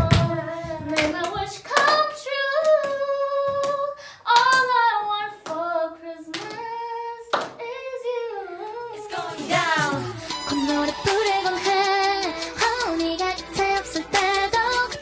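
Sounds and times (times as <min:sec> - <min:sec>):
group clapping: 0:00.0 - 0:04.8, 0:06.3 - 0:06.7, 0:07.3 - 0:07.6
woman singing: 0:00.0 - 0:15.0.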